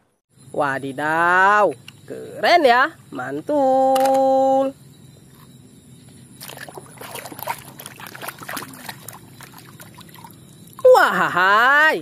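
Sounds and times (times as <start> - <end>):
hand splashing in water: 6.4 - 10.9.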